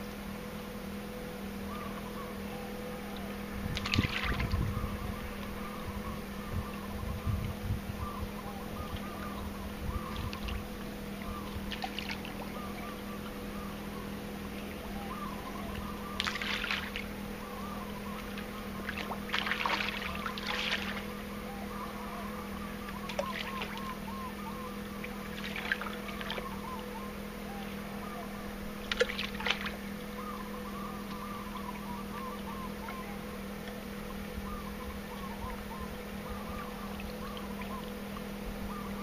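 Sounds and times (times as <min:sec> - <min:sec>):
water splashing: 0:03.7 - 0:04.7, 0:10.0 - 0:13.0, 0:15.6 - 0:17.2, 0:18.2 - 0:21.2, 0:22.9 - 0:24.0, 0:24.9 - 0:26.6, 0:28.7 - 0:30.2.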